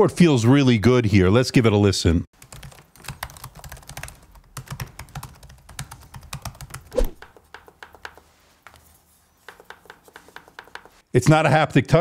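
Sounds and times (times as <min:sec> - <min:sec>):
laptop keyboard typing: 0:02.4 - 0:11.0
touchpad clicks: 0:07.3 - 0:08.3, 0:09.4 - 0:11.0.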